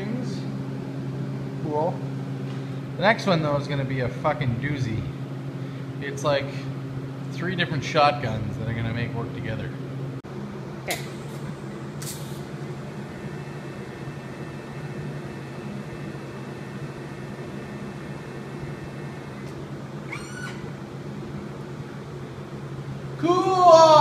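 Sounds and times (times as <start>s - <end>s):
low electrical hum: 0.0s - 24.0s
welding arc hiss: 10.9s - 19.6s
short squeak: 20.1s - 20.8s.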